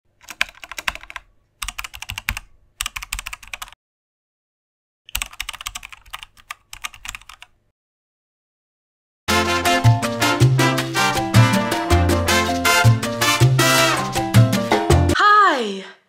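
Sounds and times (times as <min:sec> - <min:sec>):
keyboard typing clicks: 0:00.2 - 0:03.8, 0:05.1 - 0:07.5.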